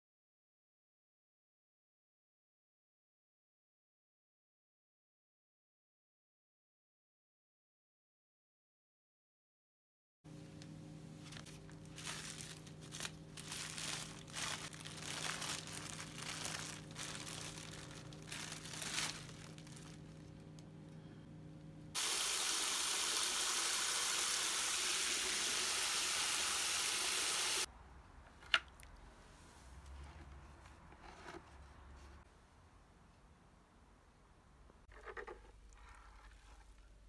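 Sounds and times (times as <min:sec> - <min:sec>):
plastic bag crinkling: 0:11.2 - 0:20.6
water gushing into a bucket: 0:22.0 - 0:27.7.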